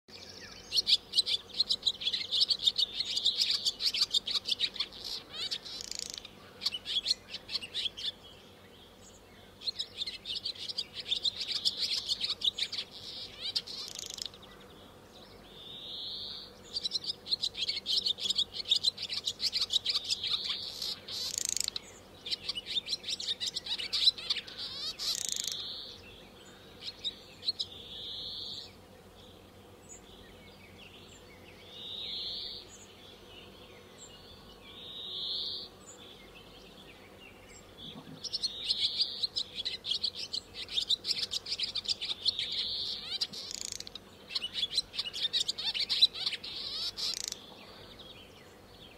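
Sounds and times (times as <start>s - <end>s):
swallow twittering song: 0.1s - 28.8s, 29.8s - 48.9s.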